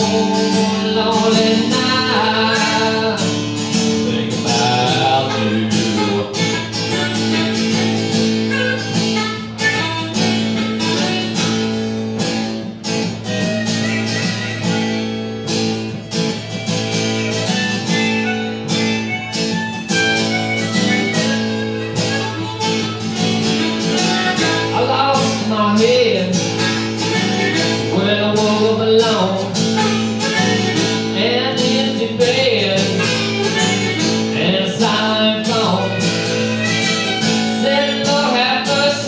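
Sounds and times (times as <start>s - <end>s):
acoustic guitar strumming: 0.0s - 39.0s
amplified harmonica: 0.0s - 39.0s.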